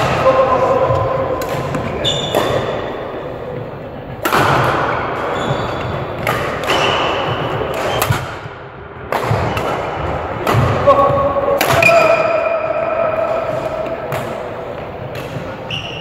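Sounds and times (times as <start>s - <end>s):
racket hitting shuttlecock: 0.0s - 3.0s, 4.2s - 8.5s, 9.1s - 15.6s
court shoes squeaking: 0.3s - 4.2s, 4.9s - 8.2s, 10.8s - 16.0s.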